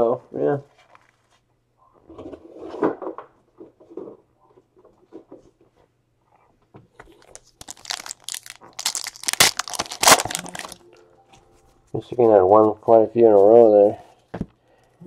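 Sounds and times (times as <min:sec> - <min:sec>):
wrapper tearing and crinkling: 0:07.2 - 0:10.8.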